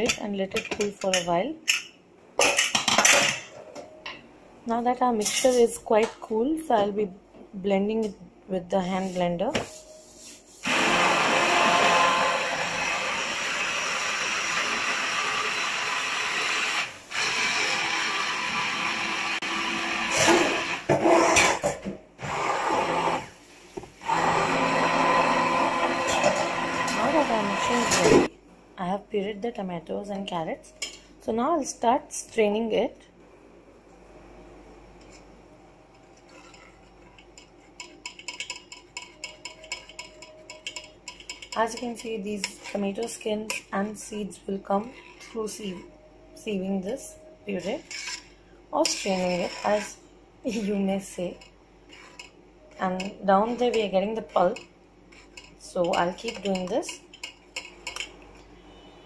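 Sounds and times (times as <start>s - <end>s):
hand blender motor running: 10.6s - 21.4s, 22.2s - 23.3s, 24.0s - 28.3s
metal spoon scraping mesh sieve: 47.6s - 58.0s.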